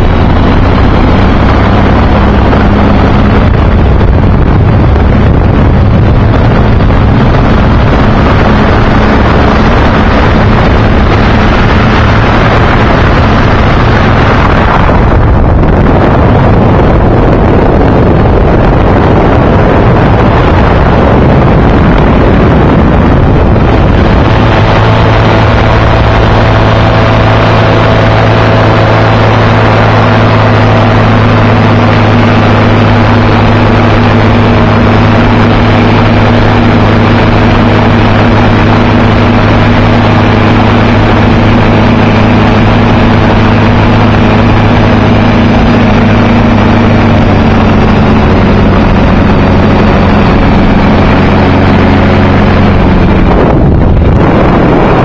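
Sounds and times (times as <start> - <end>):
ultralight trike engine running: 0.0 - 55.0
wind rushing over microphone: 0.0 - 55.0.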